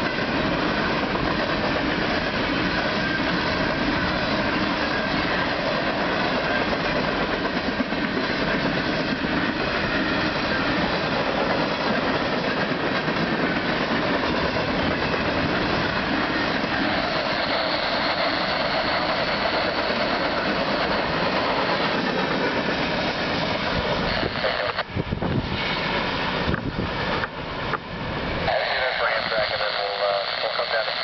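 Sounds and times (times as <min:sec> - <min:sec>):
train wheels on rails: 0:00.0 - 0:31.0.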